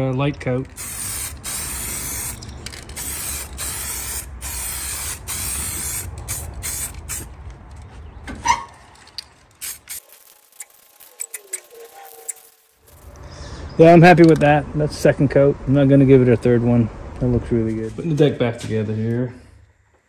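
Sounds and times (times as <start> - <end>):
aerosol spray can hissing: 0.8 - 2.4, 3.0 - 7.3, 9.6 - 11.6.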